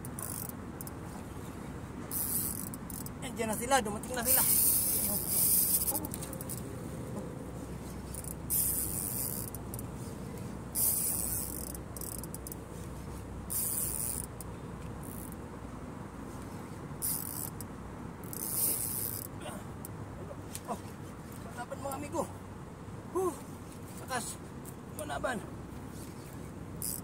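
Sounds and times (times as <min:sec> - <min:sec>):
fishing reel buzzing: 0:00.0 - 0:01.1, 0:02.0 - 0:03.2, 0:04.2 - 0:06.6, 0:08.0 - 0:10.0, 0:10.7 - 0:12.8, 0:13.5 - 0:15.4, 0:17.0 - 0:19.4, 0:26.8 - 0:27.0.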